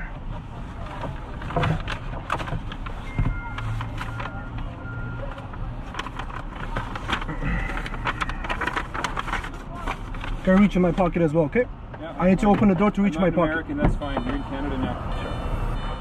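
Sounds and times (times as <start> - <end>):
rummaging clicks and knocks: 0.8 - 10.4.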